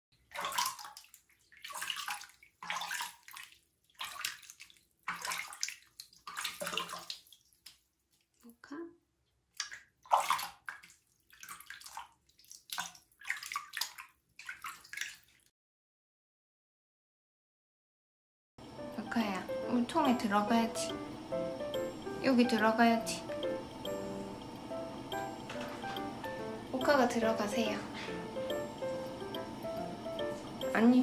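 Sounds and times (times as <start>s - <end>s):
water splashing from a tub: 0.2s - 8.4s, 9.5s - 15.5s.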